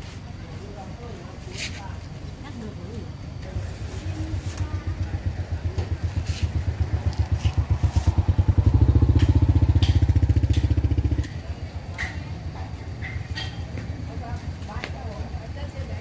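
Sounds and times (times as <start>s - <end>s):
motorcycle engine puttering: 4.0s - 15.4s.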